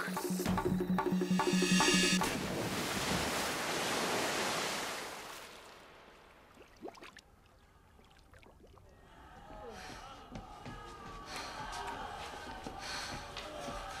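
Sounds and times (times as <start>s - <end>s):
water churning and foaming: 2.2s - 7.2s
body splashing into water: 2.2s - 8.8s.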